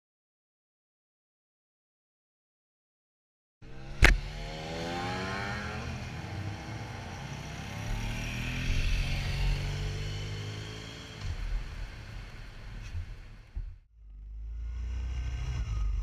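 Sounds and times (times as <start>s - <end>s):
motorcycle passing: 3.6s - 13.6s, 14.6s - 16.0s
low engine hum: 3.6s - 16.0s.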